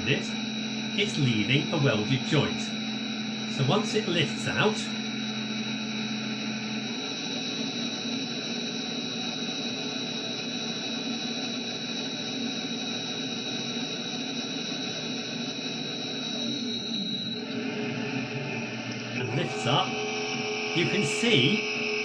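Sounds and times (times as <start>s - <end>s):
high whine: 0.0s - 22.0s
welding machine whirring: 0.0s - 22.0s.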